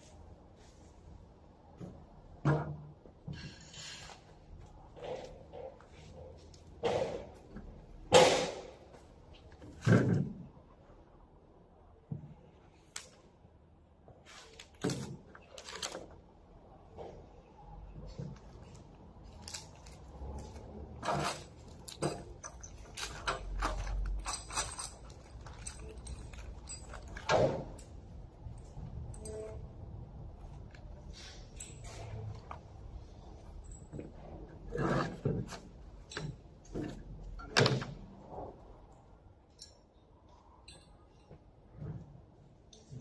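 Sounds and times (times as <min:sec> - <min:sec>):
parts knocking and clattering: 0:04.9 - 0:10.5, 0:16.8 - 0:29.6, 0:30.4 - 0:38.4.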